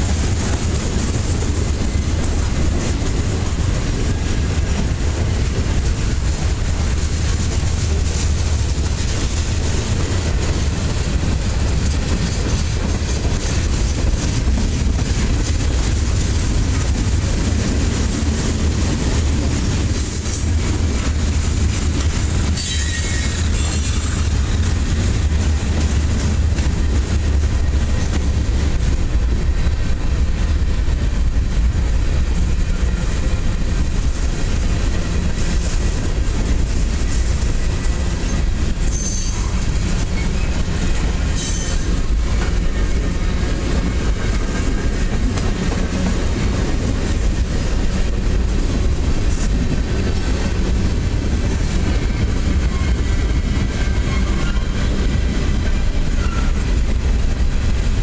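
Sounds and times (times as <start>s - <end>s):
freight train wheels rumbling: 0.0s - 58.0s
wheels squealing: 22.6s - 24.6s, 37.6s - 40.6s, 56.0s - 56.6s.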